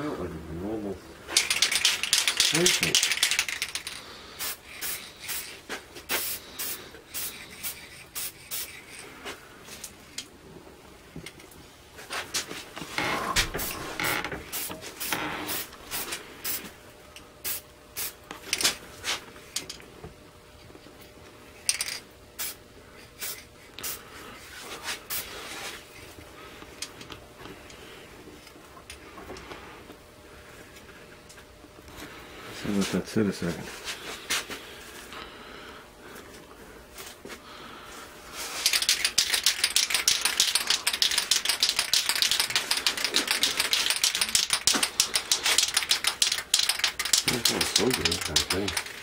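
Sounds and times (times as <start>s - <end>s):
spray paint hissing: 1.4s - 9.1s, 14.5s - 16.7s, 17.4s - 18.2s, 22.4s - 22.6s, 23.2s - 24.0s, 38.5s - 49.0s.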